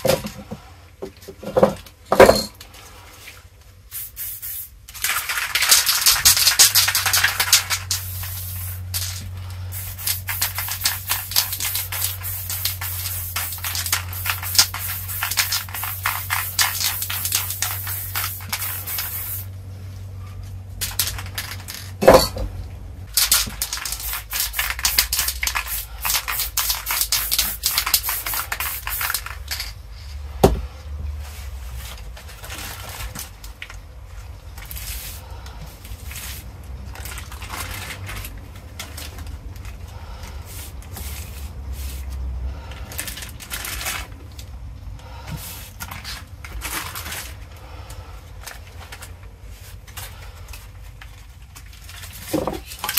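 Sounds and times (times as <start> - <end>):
spray cans rattling and hissing: 3.8 - 19.5, 20.8 - 22.4, 23.1 - 29.8, 34.6 - 39.8, 40.4 - 44.2, 45.2 - 47.4, 48.5 - 52.9.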